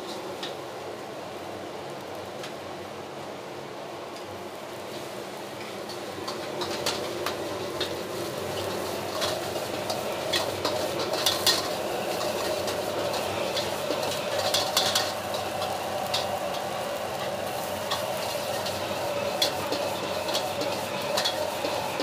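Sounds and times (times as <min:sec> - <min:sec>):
rice sizzling in a wok: 0:00.0 - 0:22.0
metal ladle scraping wok: 0:05.9 - 0:22.0.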